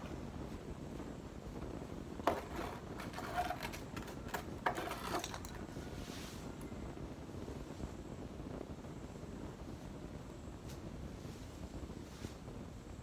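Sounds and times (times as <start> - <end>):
plastic stool knocking on tiles: 2.2 - 5.6
leafy branches rustling: 2.5 - 6.6, 9.6 - 12.7.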